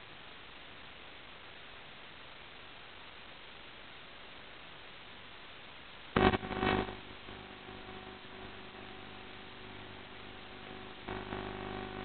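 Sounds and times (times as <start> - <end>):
video link hiss: 0.0 - 12.0
multi-tone hum: 4.6 - 12.0
loud burst of crackling: 6.2 - 12.0.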